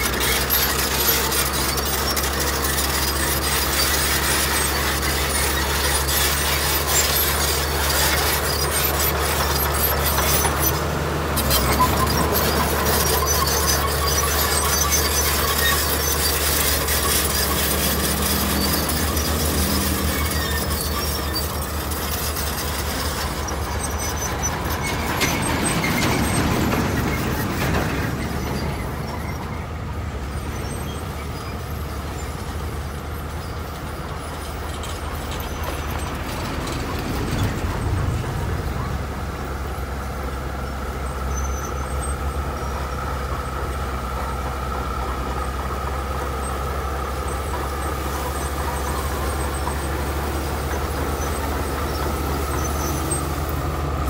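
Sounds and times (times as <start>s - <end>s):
diesel engine droning: 0.0s - 54.0s
metallic squealing and clanking: 0.0s - 54.0s.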